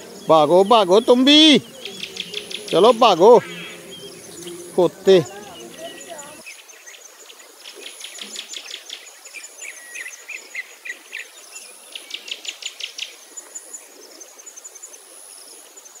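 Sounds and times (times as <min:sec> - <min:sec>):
high insect buzz: 0:00.0 - 0:06.5
birds chirping: 0:00.0 - 0:13.8.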